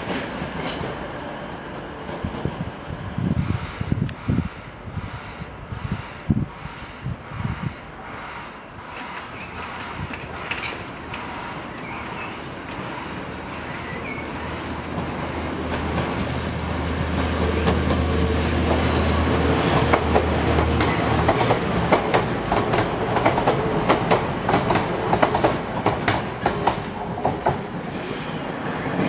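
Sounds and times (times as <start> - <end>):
train diesel engine drone: 0.0 - 29.0
train wheels clattering over rail joints: 8.8 - 18.0.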